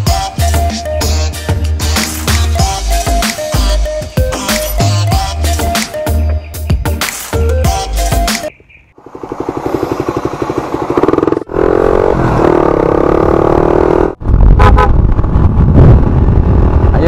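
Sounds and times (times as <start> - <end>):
wind and road rumble: 8.5 - 17.0
motorcycle engine accelerating: 9.0 - 16.9.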